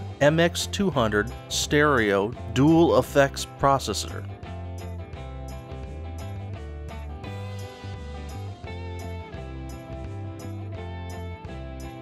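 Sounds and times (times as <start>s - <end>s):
bass line: 0.0s - 12.0s
guitar-led instrumental music: 0.0s - 12.0s.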